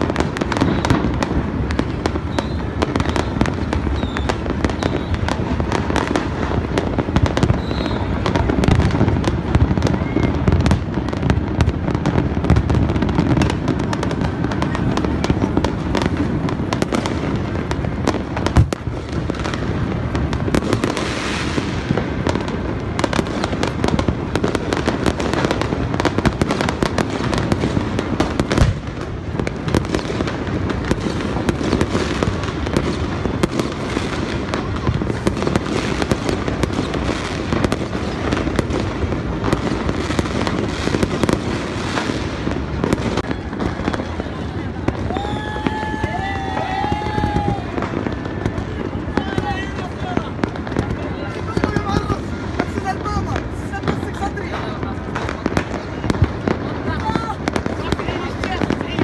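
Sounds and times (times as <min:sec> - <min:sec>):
loud firework bang: 0:00.0 - 0:44.1
fireworks popping and banging: 0:00.0 - 0:59.0.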